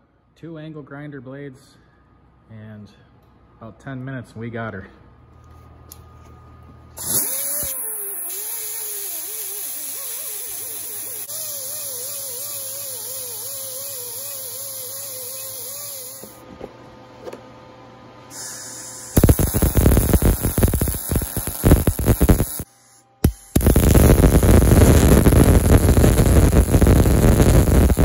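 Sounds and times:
welding arc crackling: 0:07.0 - 0:16.3, 0:19.0 - 0:28.0.

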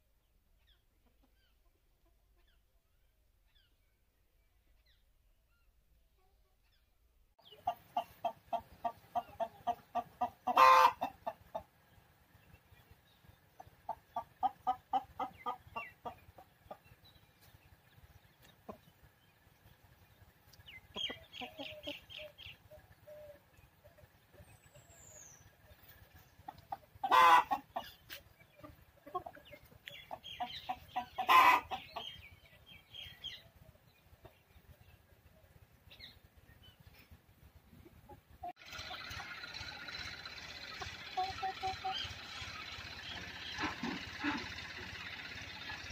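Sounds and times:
chickens clucking: 0:00.6 - 0:02.9, 0:07.4 - 0:45.9
loud short chicken calls: 0:10.5 - 0:11.1, 0:27.0 - 0:27.9, 0:31.2 - 0:31.8.

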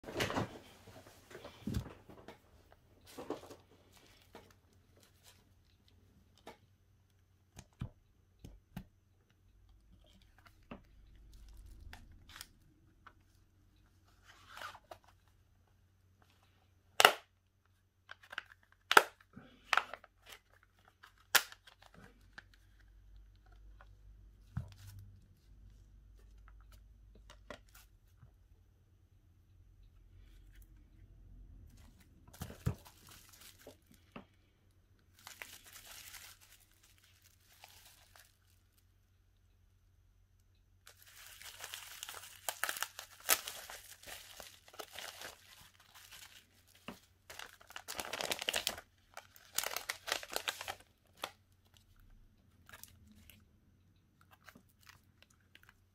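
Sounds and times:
crinkling rustling: 0:00.0 - 0:06.6, 0:31.7 - 0:39.0, 0:40.8 - 0:53.4.

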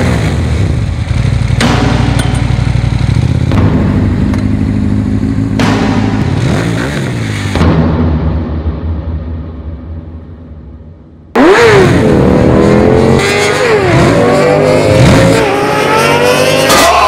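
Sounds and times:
motorcycle engines revving: 0:00.0 - 0:07.7, 0:11.3 - 0:17.0.

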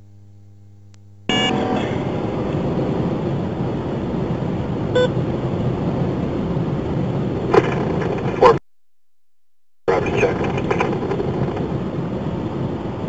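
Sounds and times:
car road and engine noise: 0:01.3 - 0:08.6, 0:09.9 - 0:13.0
short electronic beep: 0:05.0 - 0:05.2.

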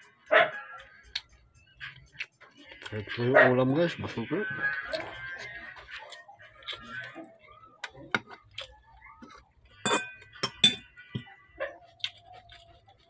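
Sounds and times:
cutlery clinking against a dish: 0:09.2 - 0:11.3.

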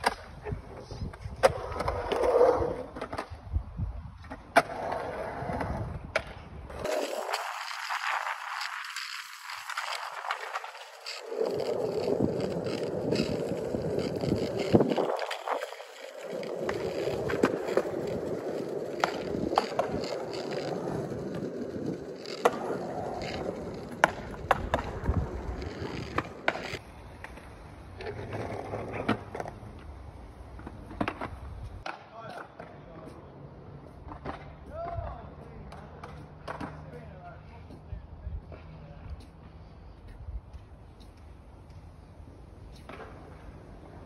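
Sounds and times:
skateboard wheels rolling on concrete: 0:00.0 - 0:44.0
skateboard clicks: 0:04.2 - 0:33.2.

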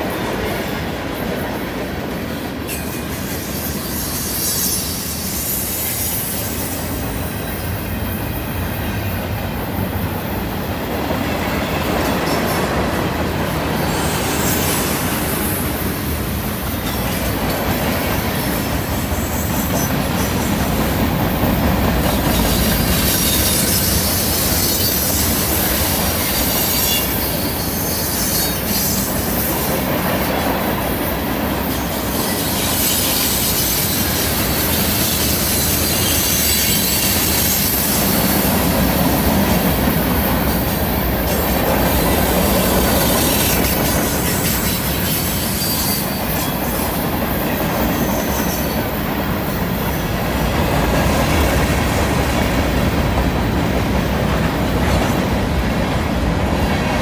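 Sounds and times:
train wheels rumbling on rails: 0:00.0 - 0:57.0
wheel flange squeal: 0:02.7 - 0:09.4, 0:22.1 - 0:30.4, 0:31.6 - 0:38.8, 0:40.2 - 0:50.3.

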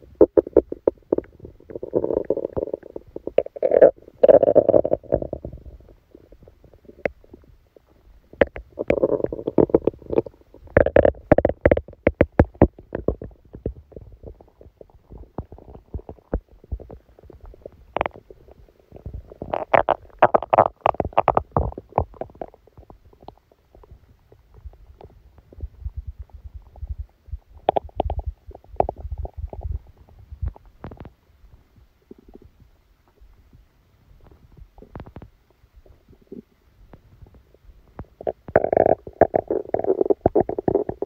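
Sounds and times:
stomach gurgling: 0:00.0 - 0:41.0
bubbly pops and crackles: 0:00.2 - 0:05.7, 0:08.3 - 0:31.2, 0:37.0 - 0:41.0.

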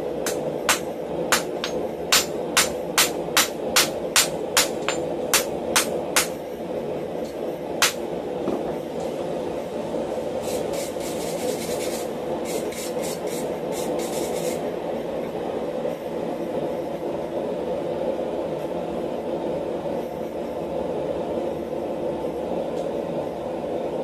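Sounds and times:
wire brush scrubbing steel: 0:10.4 - 0:14.6.

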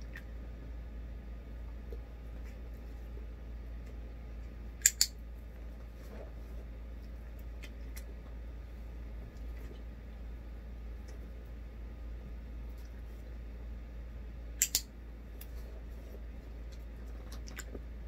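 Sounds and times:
steady low hum: 0:00.0 - 0:18.0
sharp clicks: 0:04.8 - 0:05.2, 0:14.6 - 0:14.9.

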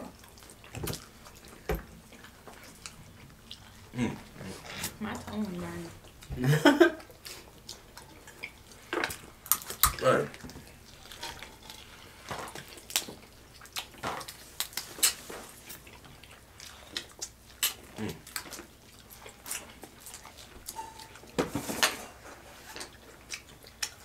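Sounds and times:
wet chewing and lip-smacking: 0:00.0 - 0:06.3, 0:06.9 - 0:21.4, 0:22.3 - 0:24.0
crab legs cracking: 0:07.6 - 0:11.8, 0:12.4 - 0:15.8.

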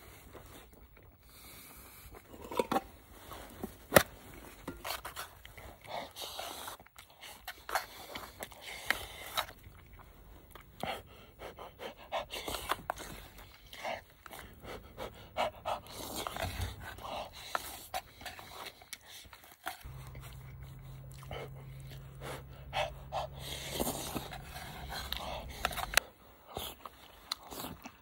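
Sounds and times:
person huffing breaths while eating: 0:10.8 - 0:26.7.

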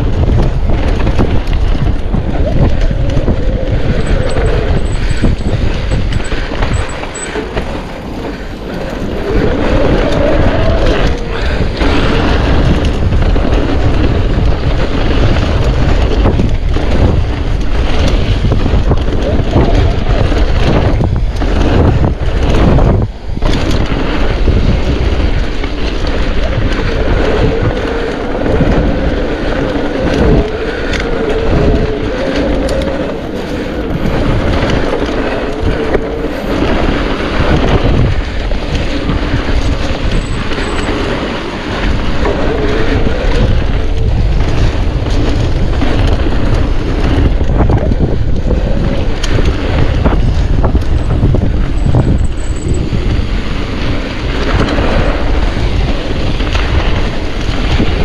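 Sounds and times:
bike rattling and knocking: 0:00.0 - 0:58.0
rolling tyre noise: 0:00.0 - 0:58.0
wind buffeting microphone: 0:00.0 - 0:58.0.

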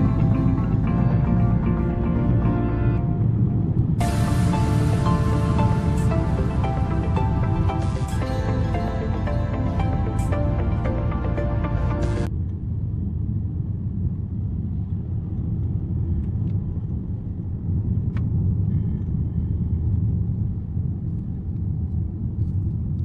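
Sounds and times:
car interior road and engine rumble: 0:00.0 - 0:12.3.

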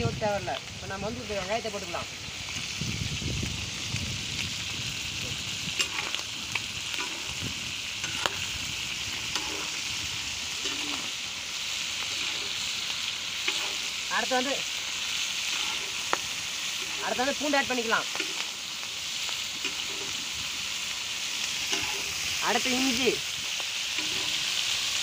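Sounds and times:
food sizzling in oil: 0:00.0 - 0:25.0
metal spatula scraping pan: 0:06.9 - 0:07.4, 0:08.0 - 0:08.6, 0:09.2 - 0:09.9, 0:10.5 - 0:11.2, 0:12.0 - 0:12.8, 0:13.4 - 0:14.0, 0:15.4 - 0:16.1, 0:21.6 - 0:22.3, 0:23.9 - 0:24.7.

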